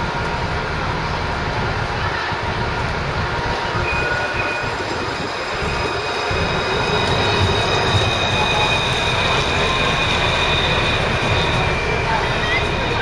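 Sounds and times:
tram wheels rumbling on rails: 0:00.0 - 0:13.0
high-pitched whining tones: 0:03.4 - 0:13.0.

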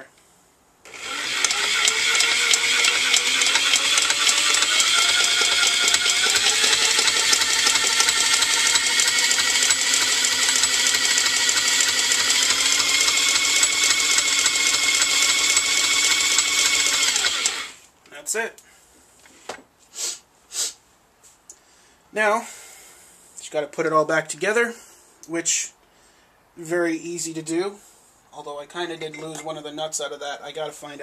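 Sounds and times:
electric drill whine: 0:00.9 - 0:17.8.

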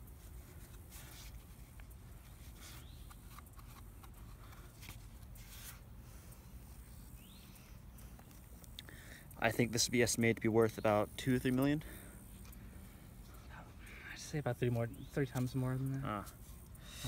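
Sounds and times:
handling rustles and clicks: 0:00.0 - 0:08.8
low steady rumble: 0:00.0 - 0:17.0.

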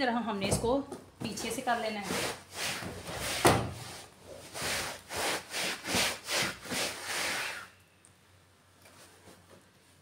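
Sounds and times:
cloth scrubbing sofa cushion: 0:01.9 - 0:07.7.

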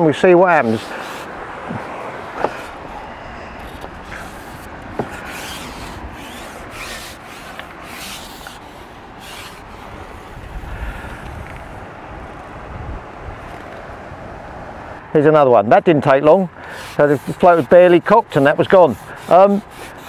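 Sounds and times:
fishing pole scraping swishes: 0:00.6 - 0:10.6.

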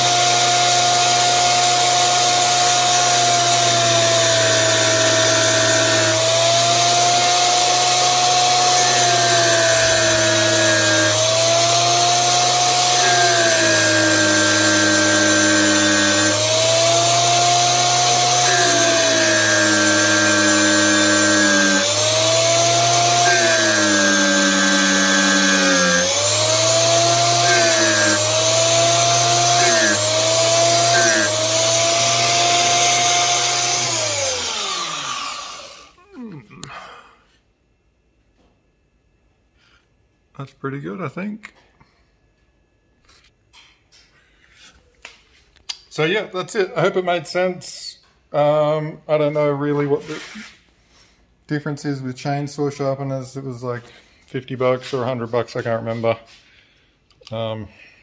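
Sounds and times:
wheel grinding steel: 0:00.0 - 0:35.7
grinding wheel motor whine: 0:00.0 - 0:36.0.

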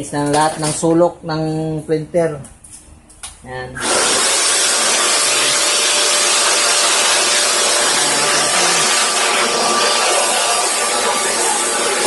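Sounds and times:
electric blower rushing air: 0:03.8 - 0:12.0.

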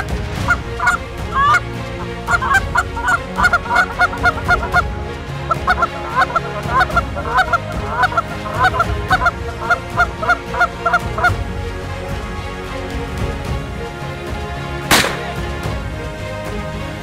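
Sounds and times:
geese honking: 0:00.0 - 0:11.4.

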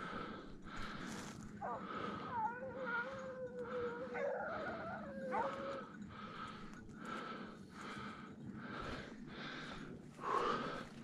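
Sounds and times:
hound howling: 0:01.6 - 0:06.0
hounds barking: 0:01.6 - 0:06.0.

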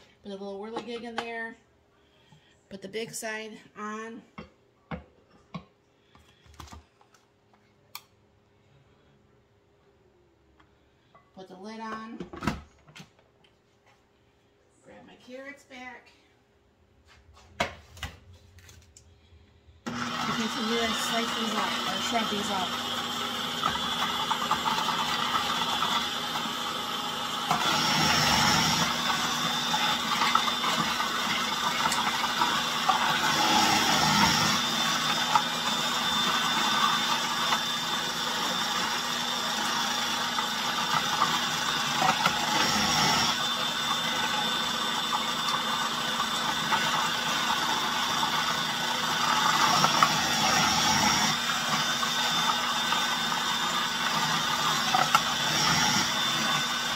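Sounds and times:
food processor shredding carrots: 0:19.9 - 0:56.9.

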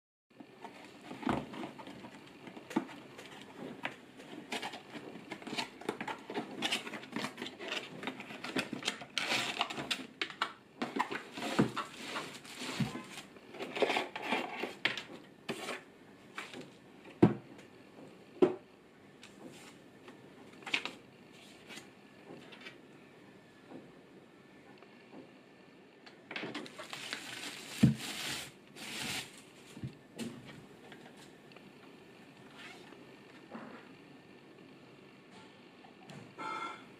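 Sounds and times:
plastic wrap crinkling: 0:04.5 - 0:14.2, 0:26.6 - 0:29.9
cardboard box being opened: 0:26.6 - 0:29.4.

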